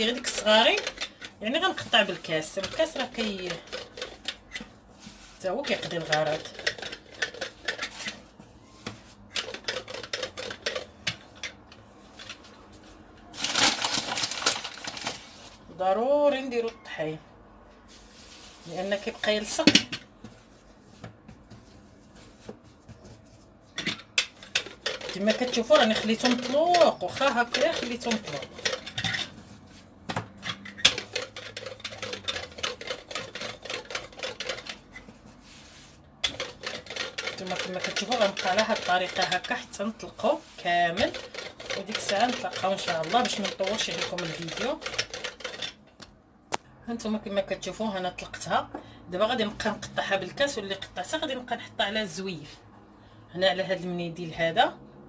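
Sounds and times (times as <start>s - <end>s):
rolling pin clicking over dough: 0.0s - 4.7s, 5.6s - 8.1s, 9.0s - 11.6s, 23.8s - 29.0s, 30.2s - 34.9s, 36.2s - 45.8s.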